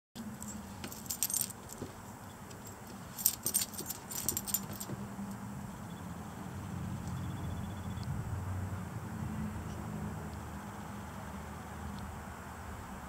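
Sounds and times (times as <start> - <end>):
dog collar tags jingling: 0.3 - 5.4.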